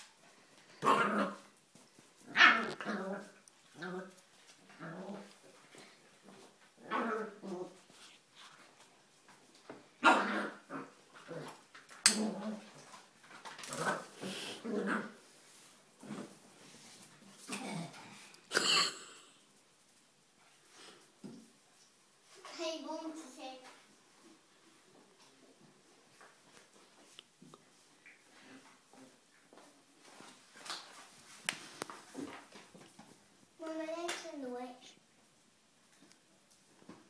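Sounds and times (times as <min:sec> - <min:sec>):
dog barking and growling: 0:00.8 - 0:01.5, 0:02.2 - 0:04.2, 0:06.8 - 0:07.8, 0:10.0 - 0:12.8, 0:13.7 - 0:15.2.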